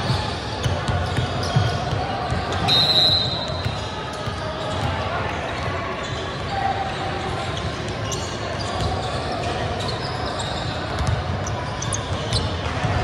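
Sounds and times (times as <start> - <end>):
basketball bouncing on gym floor: 0.0 - 2.7, 10.9 - 11.4
shoes squeaking on court: 0.0 - 12.6
voices in a large hall: 0.0 - 13.0.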